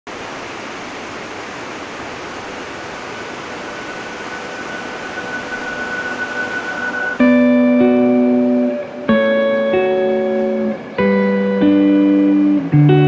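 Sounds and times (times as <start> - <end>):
running water rushing: 0.1 - 12.8
faint held musical tone: 2.5 - 12.7.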